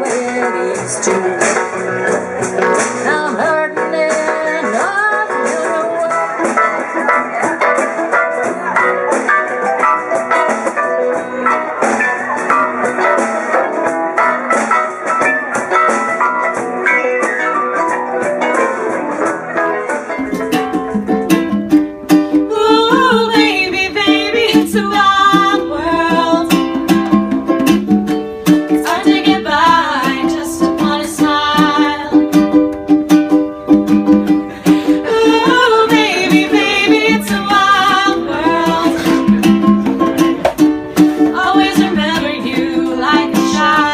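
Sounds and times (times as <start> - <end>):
woman singing: 0.0 - 1.8, 2.9 - 6.8, 22.3 - 26.8, 28.7 - 32.4, 34.6 - 39.4, 41.2 - 43.9
live band music: 0.0 - 43.9
strummed ukulele: 0.0 - 43.9.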